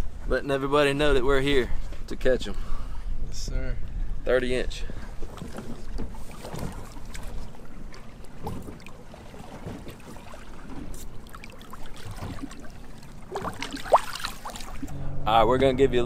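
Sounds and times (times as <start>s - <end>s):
water lapping against boat hull: 3.8s - 15.1s.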